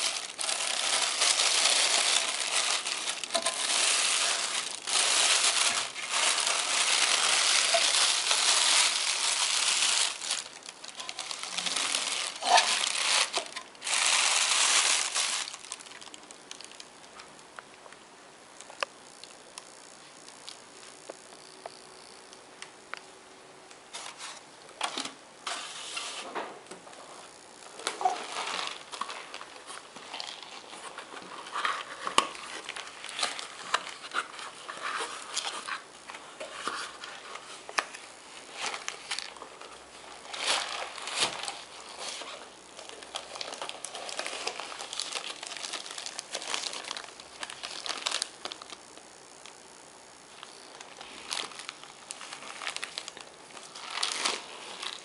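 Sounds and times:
plastic packaging crinkling: 0.0 - 17.3, 27.7 - 49.6, 50.3 - 55.0.

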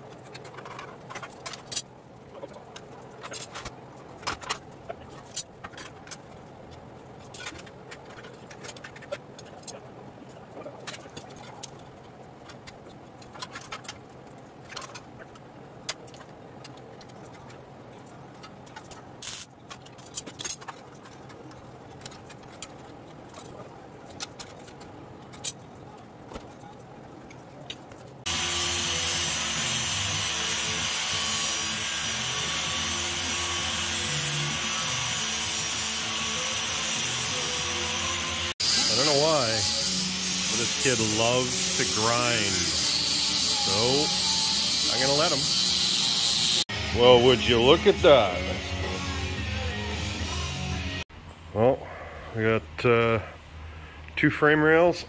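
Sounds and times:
angle grinder grinding steel: 28.3 - 51.0.

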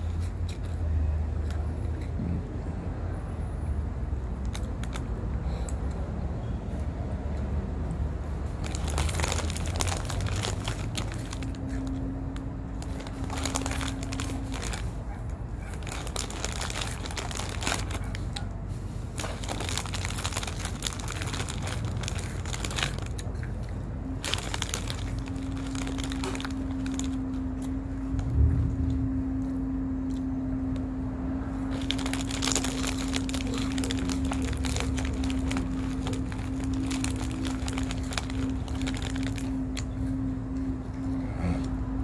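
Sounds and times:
foil snack bag crinkling: 8.6 - 27.4, 31.6 - 40.1.

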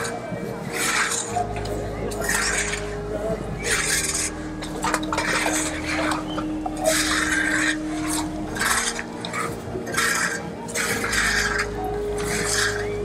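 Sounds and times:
rough scraping strokes: 0.0 - 13.0.

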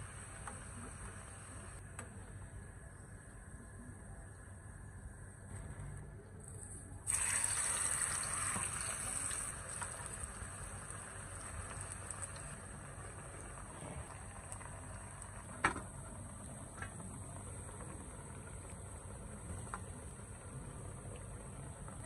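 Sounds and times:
plantain frying in hot oil: 7.1 - 22.0.

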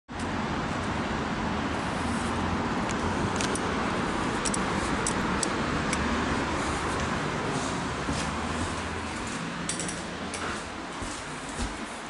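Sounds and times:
electric train rumble and hum: 0.1 - 12.0.

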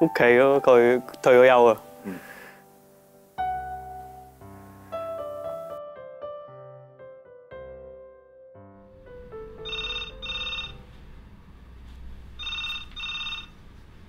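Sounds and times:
soft piano notes: 0.0 - 12.9
telephone electronic double ring: 9.6 - 10.8, 12.4 - 13.6.

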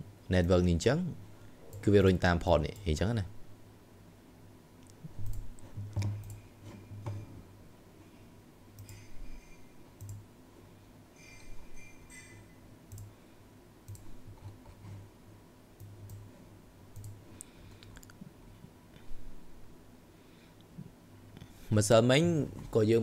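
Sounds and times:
computer mouse and keyboard clicks: 4.8 - 7.3, 10.0 - 10.2, 17.0 - 18.2.

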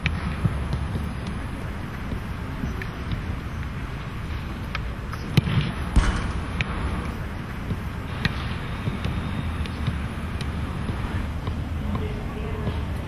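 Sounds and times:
low rumble: 0.2 - 9.1
football being kicked: 5.3 - 12.1.

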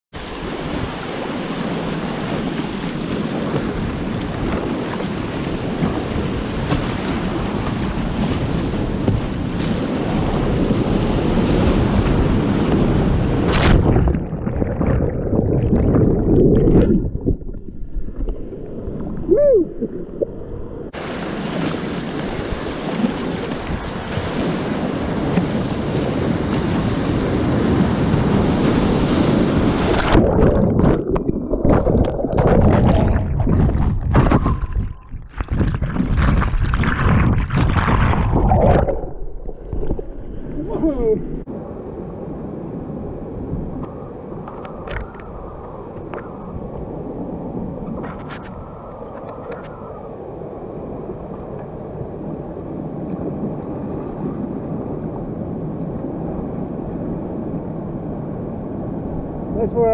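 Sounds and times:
paddle splashes: 0.2 - 17.1, 21.0 - 40.6
underwater knocks and gurgles: 3.4 - 9.7, 12.0 - 20.7, 29.7 - 41.0, 43.6 - 46.5.

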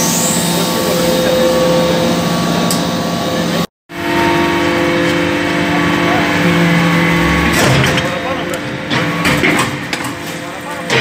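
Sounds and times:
hydraulic press pump drone: 0.0 - 11.0.

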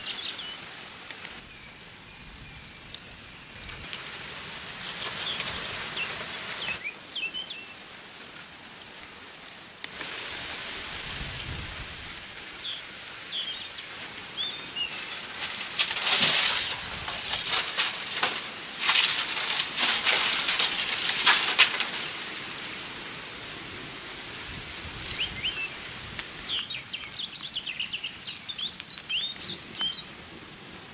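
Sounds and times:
small birds chirping: 0.0 - 9.7, 11.2 - 15.6, 24.5 - 30.2
loud rustling and crackling: 14.8 - 23.4.

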